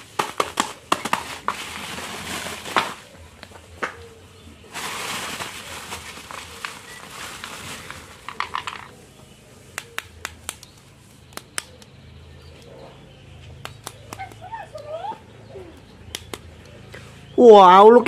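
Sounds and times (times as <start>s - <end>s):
bubble wrap crinkling: 0.6s - 3.1s, 4.7s - 8.9s.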